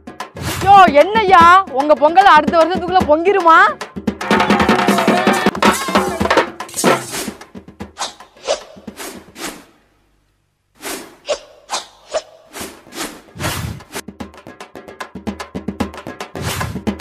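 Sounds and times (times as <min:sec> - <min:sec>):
drum strikes: 0:04.0 - 0:08.0.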